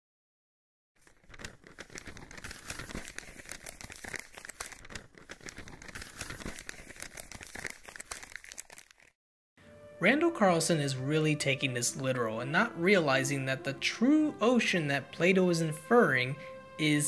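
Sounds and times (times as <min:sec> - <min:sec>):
paper crumpling and crinkling: 0:01.0 - 0:09.2.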